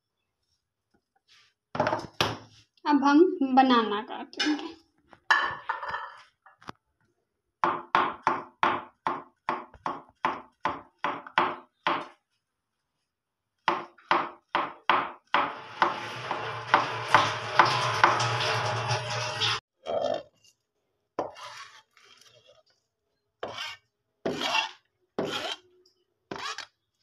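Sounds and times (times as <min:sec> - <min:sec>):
knife chopping on plastic board: 0:07.6 - 0:12.2.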